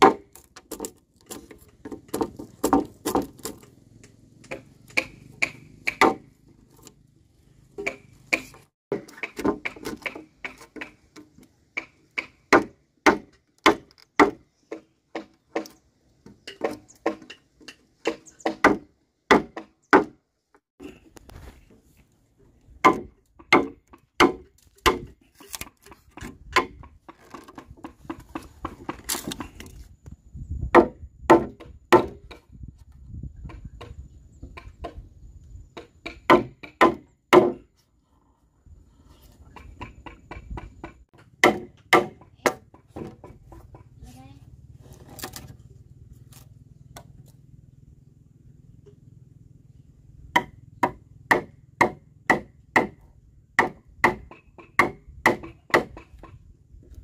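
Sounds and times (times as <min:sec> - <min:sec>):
axe chopping wood: 0:00.0 - 0:03.7, 0:04.4 - 0:06.3, 0:07.8 - 0:15.8, 0:16.5 - 0:20.2, 0:22.8 - 0:29.6, 0:30.7 - 0:32.5, 0:35.8 - 0:37.7, 0:39.5 - 0:43.8, 0:50.4 - 0:53.0, 0:53.6 - 0:56.4.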